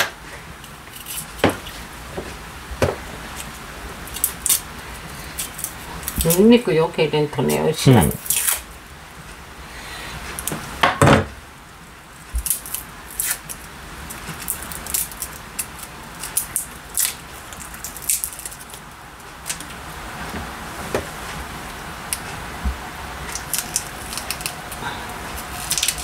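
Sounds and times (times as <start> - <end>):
knock on counter: 10.8 - 11.3.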